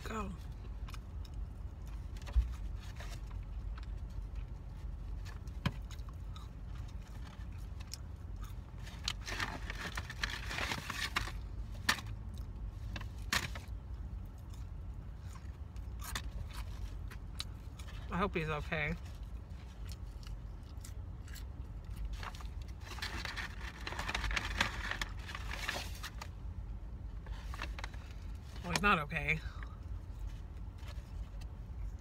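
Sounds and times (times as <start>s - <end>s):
person chewing food: 13.9s - 18.1s, 19.2s - 22.8s.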